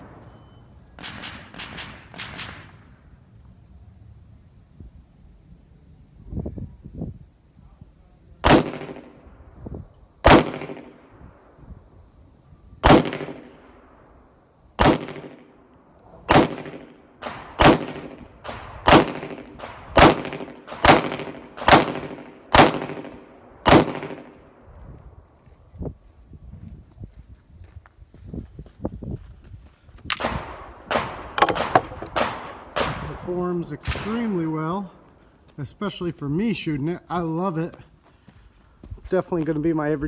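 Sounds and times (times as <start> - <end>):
pistol shots: 1.0 - 2.7, 8.4 - 9.2, 10.2 - 11.1, 12.8 - 13.7, 14.8 - 15.6, 16.2 - 24.6, 30.1 - 34.5.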